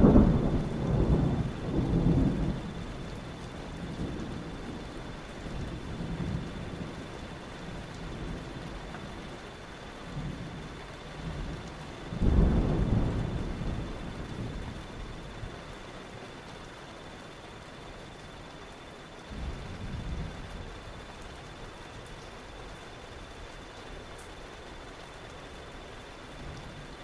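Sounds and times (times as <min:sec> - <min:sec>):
rolling thunder: 0:00.0 - 0:07.1, 0:11.2 - 0:15.6, 0:19.3 - 0:21.0
rain falling: 0:00.0 - 0:27.0.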